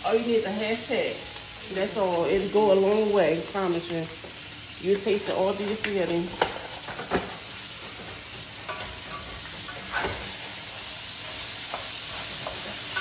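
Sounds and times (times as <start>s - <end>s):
meat sizzling in a frying pan: 0.0s - 13.0s
utensil scraping in pan: 5.0s - 13.0s.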